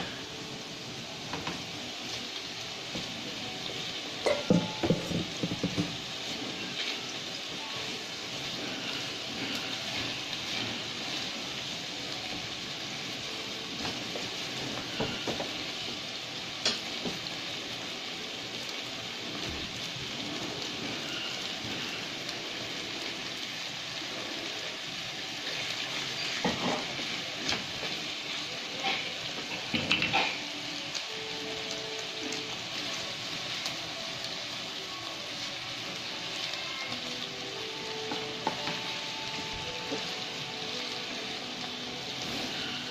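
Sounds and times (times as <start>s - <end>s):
food sizzling in a wok: 0.0s - 42.9s.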